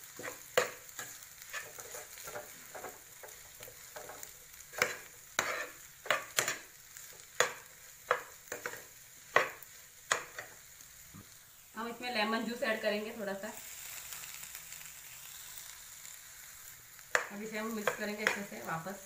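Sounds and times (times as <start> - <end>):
spatula scraping frying pan: 0.0 - 10.6
faint sizzle: 0.0 - 19.0.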